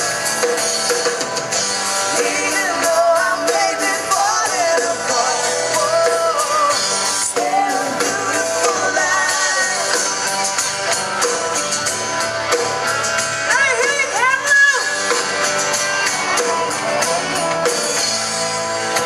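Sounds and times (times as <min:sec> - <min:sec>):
live rock band playing: 0:00.0 - 0:19.0
woman singing: 0:02.1 - 0:10.2.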